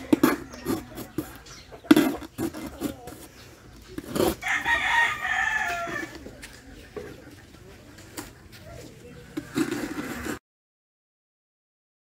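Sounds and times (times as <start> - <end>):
rooster crowing: 4.4 - 6.2.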